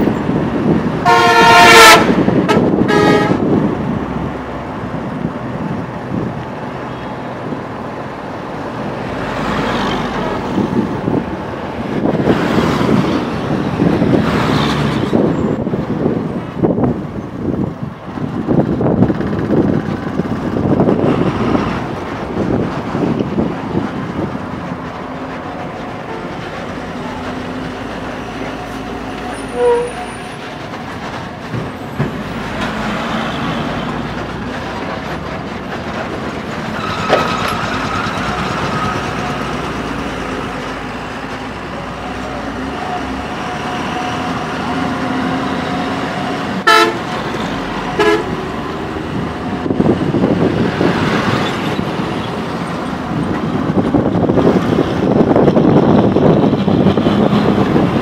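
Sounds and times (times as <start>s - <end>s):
motorcycle engine and road noise: 0.0s - 58.0s
vehicle horn toots: 1.0s - 3.4s, 29.5s - 30.0s, 46.6s - 47.0s, 48.0s - 48.4s.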